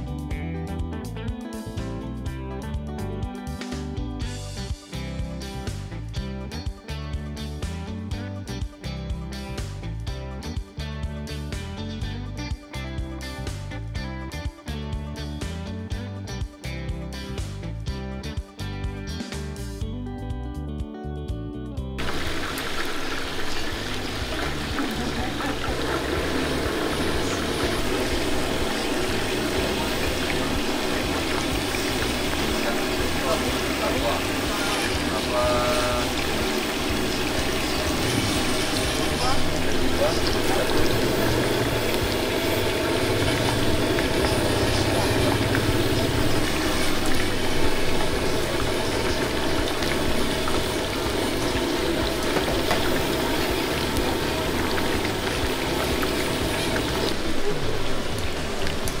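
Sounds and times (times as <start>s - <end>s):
deep-frying oil sizzle: 22.0s - 59.0s.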